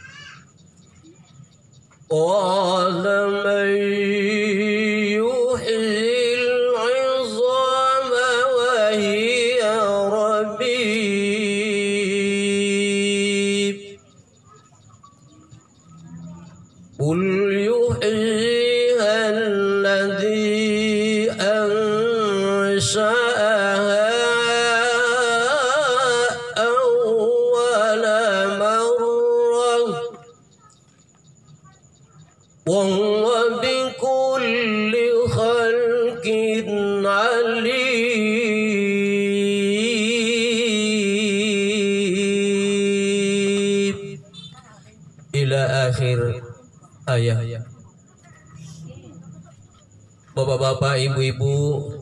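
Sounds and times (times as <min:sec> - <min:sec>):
man chanting into microphone: 0:02.1 - 0:14.0, 0:17.0 - 0:30.2, 0:32.6 - 0:44.2, 0:50.4 - 0:52.0.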